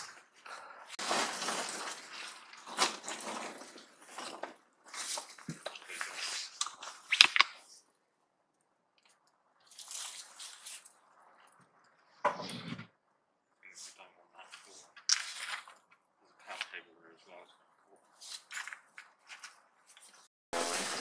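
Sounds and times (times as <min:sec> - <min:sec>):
footsteps crunching through dry leaves: 0:01.0 - 0:06.6, 0:09.7 - 0:11.0.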